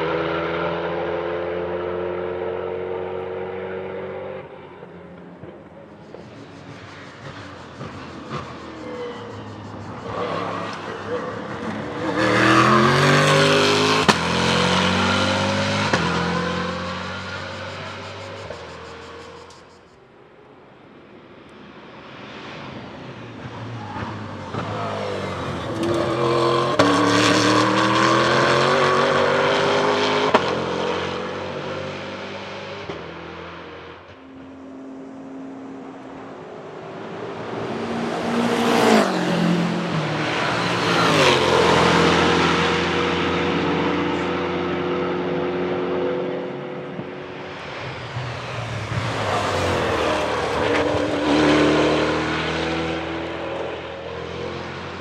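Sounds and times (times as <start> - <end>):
race car engine passing by: 6.0 - 19.6, 22.4 - 55.0.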